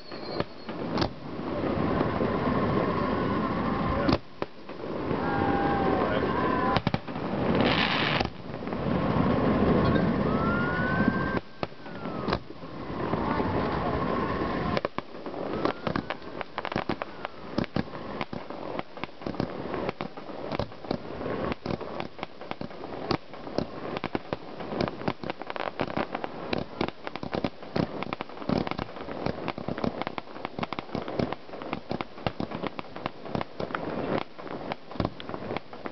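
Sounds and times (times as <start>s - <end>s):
fireworks whistles: 0.0s - 8.4s, 9.2s - 35.9s
fireworks exploding: 0.0s - 35.9s
crackle of rapid small pops: 4.0s - 4.9s, 6.7s - 8.9s, 10.6s - 12.6s, 14.7s - 35.9s.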